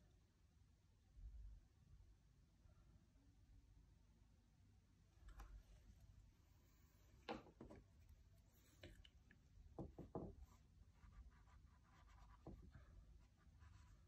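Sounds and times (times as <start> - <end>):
paintbrush stroking canvas: 10.0 - 14.0
brush wiped in cloth: 10.4 - 14.0.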